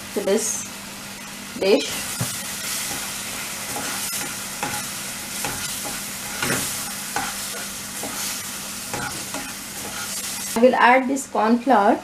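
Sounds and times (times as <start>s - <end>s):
onions sizzling in wok: 0.0s - 11.2s
spatula scraping pan: 1.8s - 10.6s.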